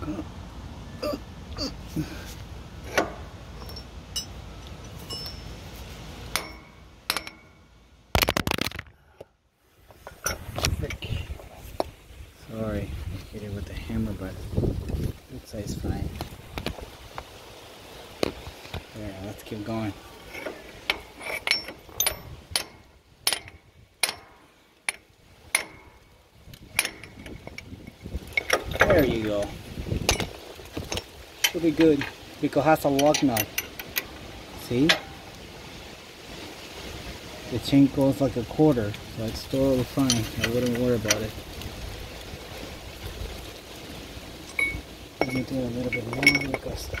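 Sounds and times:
metal tools clinking and knocking: 2.9 - 5.6, 6.3 - 7.6, 10.0 - 11.2, 20.2 - 35.2, 39.4 - 41.3, 44.4 - 47.0
metallic wrench clinks: 3.6 - 5.6, 20.3 - 24.3, 44.5 - 47.0.

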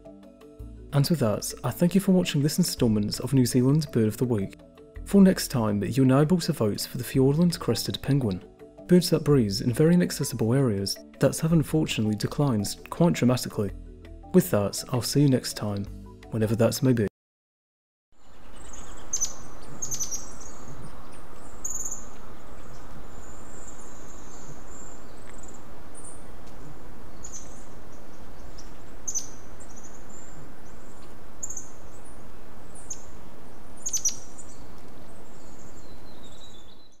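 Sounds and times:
steady background hiss: 18.2 - 36.9
songbirds chirping and whistling: 18.2 - 37.0.

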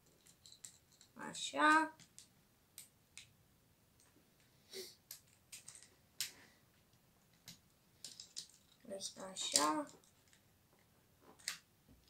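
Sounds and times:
plastic parts clicking together: 0.1 - 1.1, 2.0 - 3.3, 5.1 - 6.4, 7.3 - 8.8, 11.4 - 11.7.

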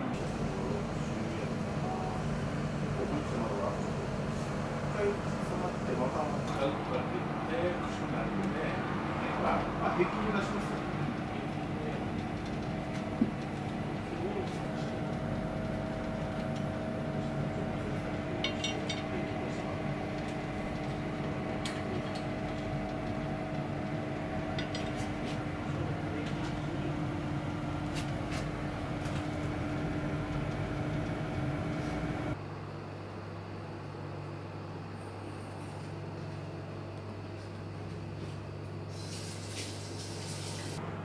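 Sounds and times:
kitchen appliance humming: 0.0 - 32.4.

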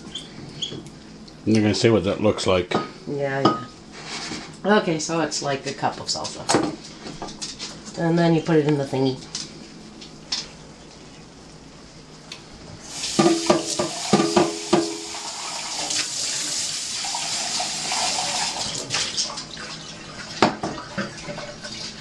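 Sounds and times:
water running into sink: 12.8 - 22.0
glass cup clinking: 13.2 - 15.2.

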